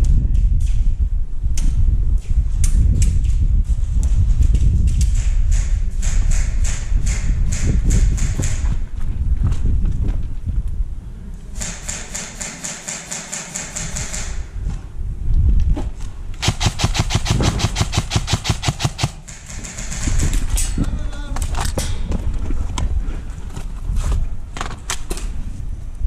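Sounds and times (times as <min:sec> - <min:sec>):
airsoft guns firing bursts: 0:11.6 - 0:14.5, 0:16.4 - 0:20.7.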